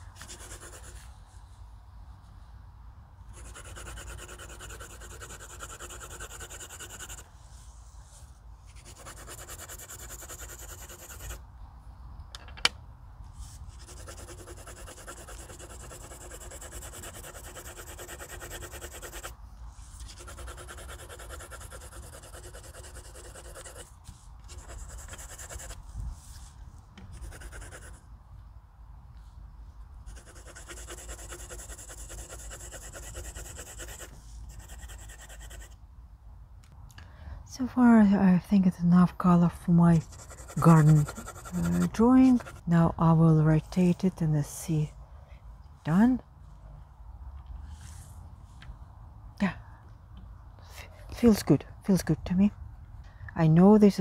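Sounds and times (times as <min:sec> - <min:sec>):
pencil shading on paper: 0:00.2 - 0:01.0, 0:03.3 - 0:07.3, 0:08.8 - 0:11.4, 0:13.8 - 0:19.3, 0:20.0 - 0:23.9, 0:24.5 - 0:25.8, 0:27.2 - 0:28.0, 0:30.1 - 0:35.7, 0:40.0 - 0:42.7.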